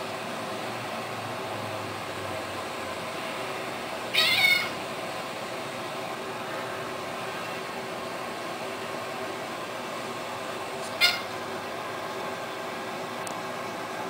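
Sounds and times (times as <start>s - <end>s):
steady background hum: 0.0s - 14.0s
cat meowing: 4.1s - 4.8s, 10.9s - 11.3s.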